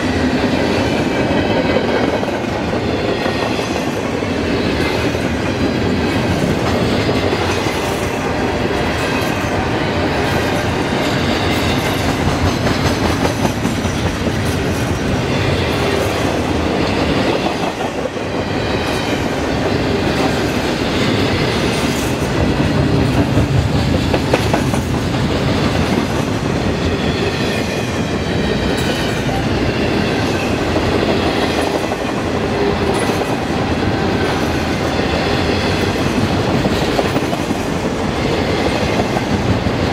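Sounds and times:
train wheels clattering over rails: 0.0s - 39.9s.

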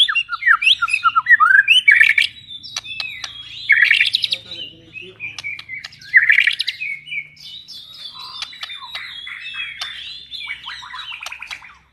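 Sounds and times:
bird singing whistles: 0.0s - 11.9s
sharp clicking chips: 2.0s - 6.9s, 8.0s - 10.2s, 11.0s - 11.8s.

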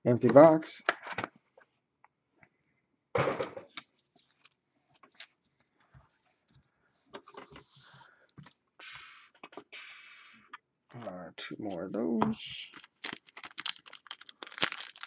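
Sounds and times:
hands handling trading cards: 3.7s - 6.6s, 11.6s - 15.0s.

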